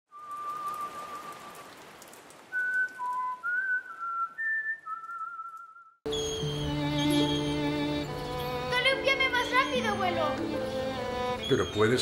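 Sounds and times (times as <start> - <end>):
person whistling slow tune: 0.1 - 1.7, 2.5 - 7.6
raindrop ticks: 0.1 - 5.7
rain hissing: 0.1 - 12.0.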